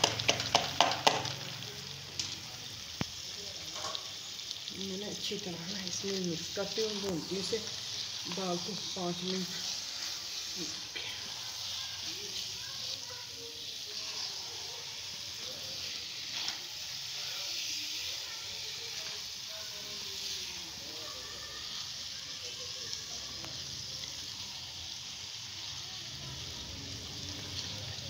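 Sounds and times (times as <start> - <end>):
spoon knocking pan: 0.0 - 1.5
food sizzling in oil: 0.0 - 28.0.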